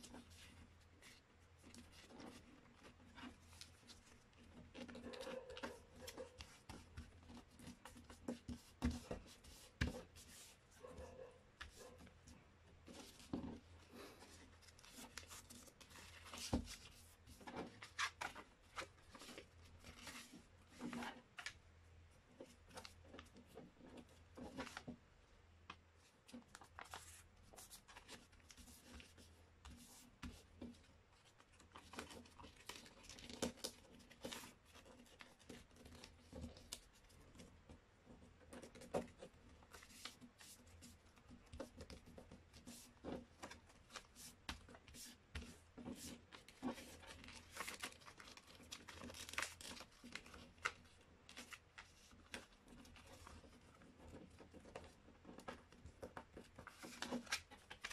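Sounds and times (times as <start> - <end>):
paper rustling and creasing: 26.0 - 37.2, 38.6 - 57.9.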